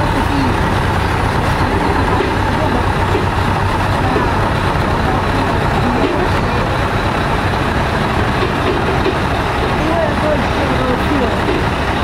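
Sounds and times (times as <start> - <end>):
faint voices: 0.0 - 7.5, 9.7 - 12.0
heavy traffic rumbling: 0.0 - 12.0.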